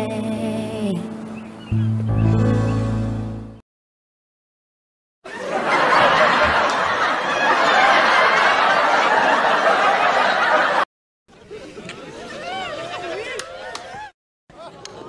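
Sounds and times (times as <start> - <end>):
studio audience laughing: 5.3 - 13.5.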